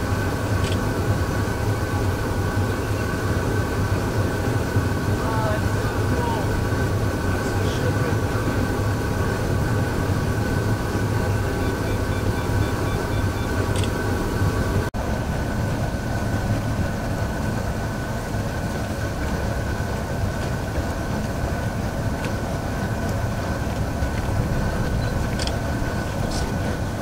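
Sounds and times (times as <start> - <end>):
faint high whine: 0.0 - 20.0
boat low rumble: 0.0 - 27.0.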